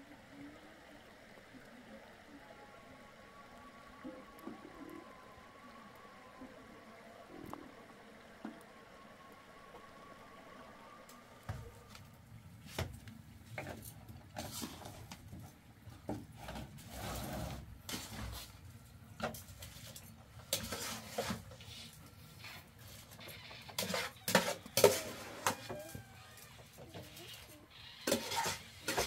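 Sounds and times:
objects knocking and clattering: 23.6s - 26.1s.

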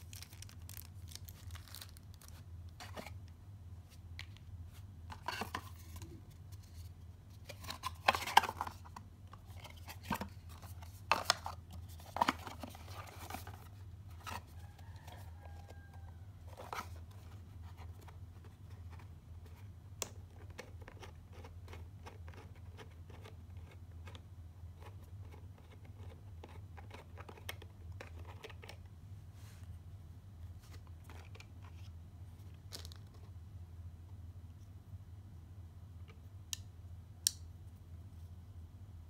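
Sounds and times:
plastic bag rustling: 0.0s - 3.0s
cardboard packaging rustling: 0.0s - 3.3s, 5.1s - 19.0s.

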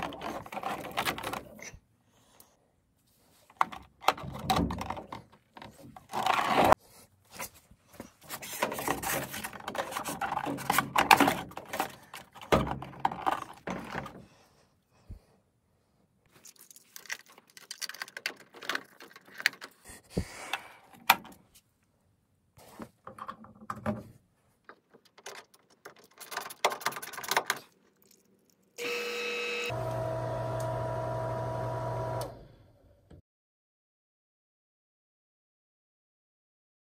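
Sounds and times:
plastic fittings clicking and rattling: 16.4s - 20.0s, 23.0s - 28.7s
pump motor humming: 28.8s - 32.4s.

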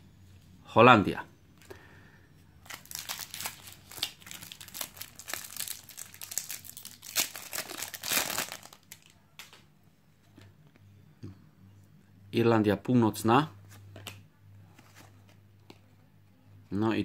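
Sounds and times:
foil wrapper crinkling and tearing: 2.6s - 9.1s.

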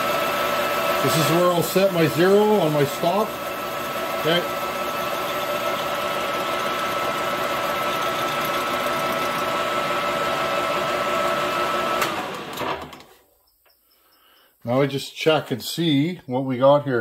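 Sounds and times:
metal lathe whining: 0.0s - 13.0s.

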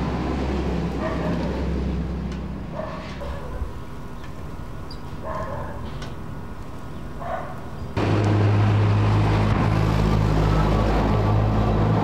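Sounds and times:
armoured vehicle engine drone: 0.0s - 2.7s, 8.0s - 12.0s
quiet street background: 0.0s - 12.0s.

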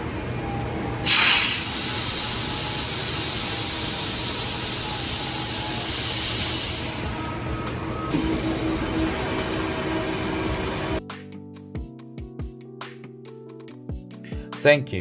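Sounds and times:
valve venting with loud hiss: 1.0s - 6.8s.

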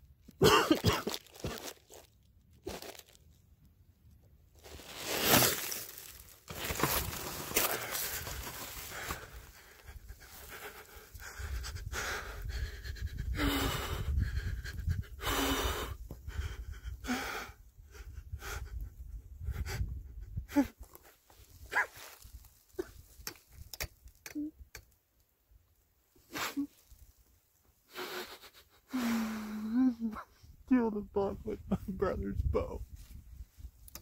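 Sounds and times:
man panting: 7.6s - 20.8s.

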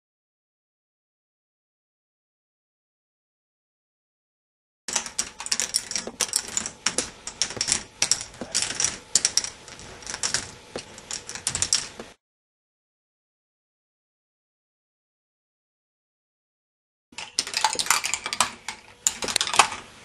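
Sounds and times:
plastic balls clattering on track: 4.9s - 12.2s, 17.2s - 19.9s.

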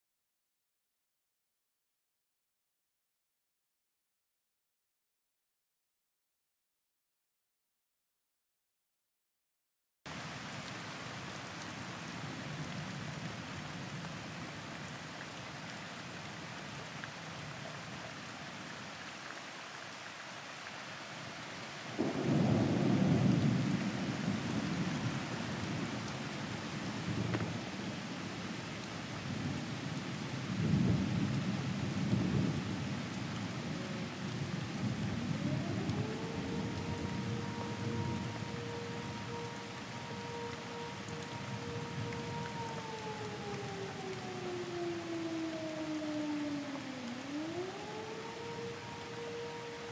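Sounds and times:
rain falling through trees: 10.1s - 49.9s
thunder rumbling: 22.0s - 49.6s.

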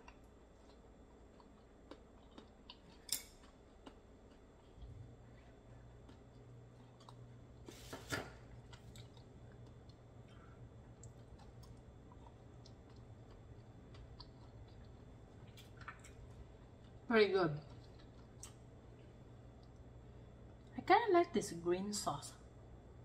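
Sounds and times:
chewing oyster: 0.0s - 7.3s, 8.5s - 18.6s.

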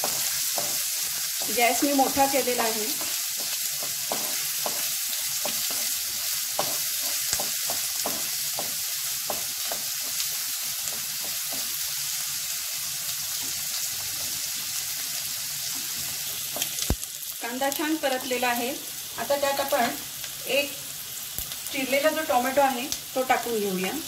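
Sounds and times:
spatula tapping pan: 0.0s - 12.0s
onion sizzling in hot oil: 0.0s - 24.0s.

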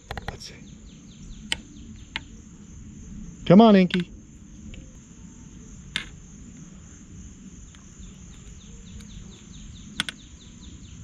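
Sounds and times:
high insect drone: 0.0s - 11.0s
sharp clicks: 3.9s - 4.1s, 10.0s - 10.2s.

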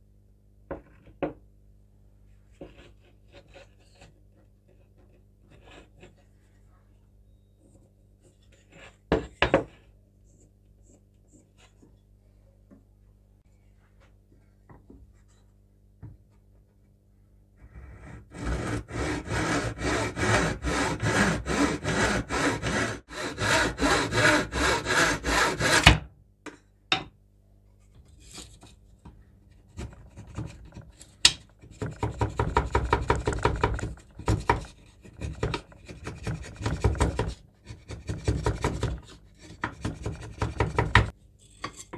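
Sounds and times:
hand tool rasping wood: 17.9s - 26.0s, 29.8s - 41.1s.

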